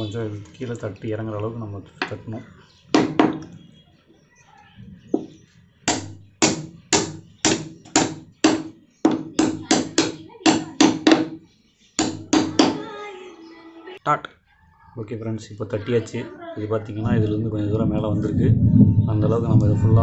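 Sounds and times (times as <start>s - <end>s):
hammer knocking wooden handle: 3.0s - 3.5s, 5.9s - 11.4s, 12.0s - 12.8s.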